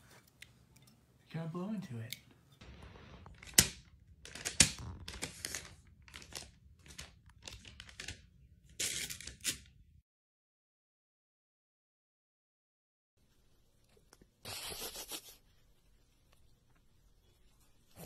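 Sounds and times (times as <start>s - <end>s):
sharp paper snaps: 3.3s - 9.7s
tissue paper crinkling and tearing: 4.2s - 8.2s.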